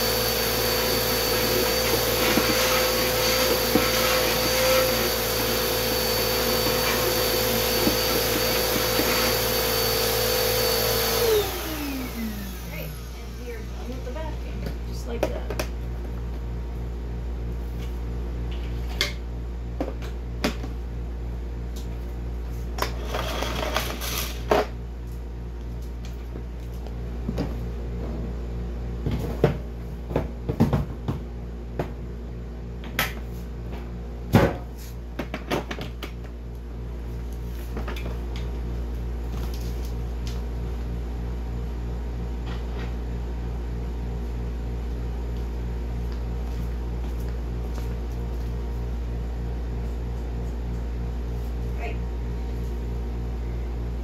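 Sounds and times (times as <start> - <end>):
household knocks and clatter: 29.0 - 32.0.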